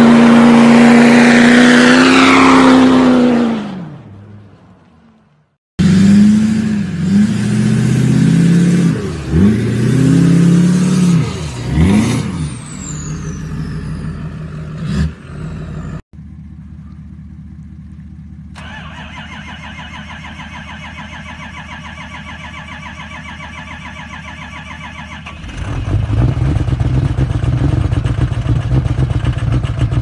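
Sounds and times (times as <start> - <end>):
truck engine revving: 0.0 - 4.5, 5.8 - 16.0
high falling whistle: 11.2 - 14.5
high repeating squealing chirp: 11.4 - 14.6.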